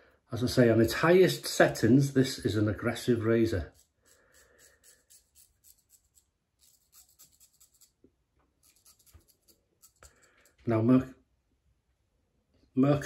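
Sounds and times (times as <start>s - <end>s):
scratchy ticks of razor handling: 3.7s - 10.7s.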